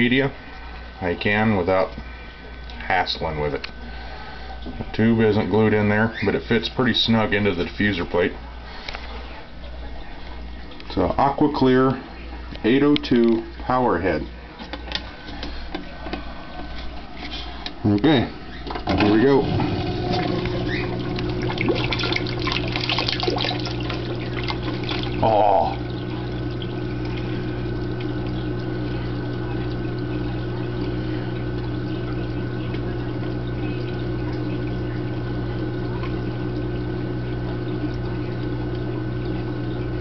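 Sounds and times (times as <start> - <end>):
aquarium pump humming: 0.0 - 40.0
water splashing and gurgling: 18.9 - 40.0.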